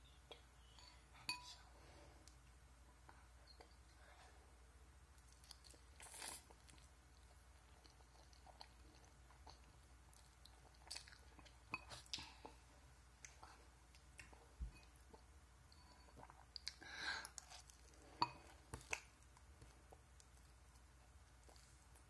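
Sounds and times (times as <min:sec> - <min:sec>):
person chewing noodles: 0:05.2 - 0:12.6.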